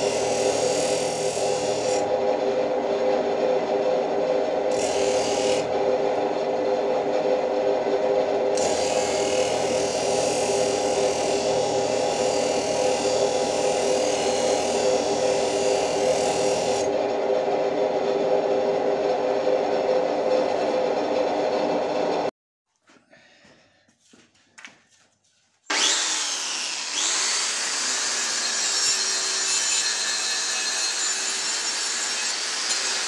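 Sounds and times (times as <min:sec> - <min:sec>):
grinder motor humming: 0:00.0 - 0:22.3, 0:25.7 - 0:29.4
steel grinding on wheel: 0:00.0 - 0:22.3, 0:25.7 - 0:33.0.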